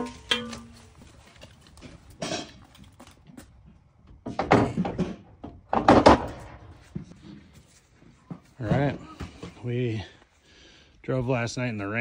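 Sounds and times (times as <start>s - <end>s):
knocks and thumps with rattle: 4.1s - 7.4s.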